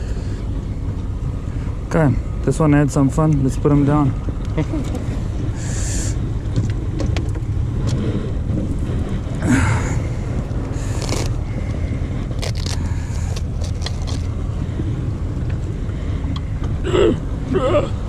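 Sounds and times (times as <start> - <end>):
steady low rumble: 0.0 - 18.0
velcro strap ripping: 10.8 - 11.4, 12.4 - 14.3.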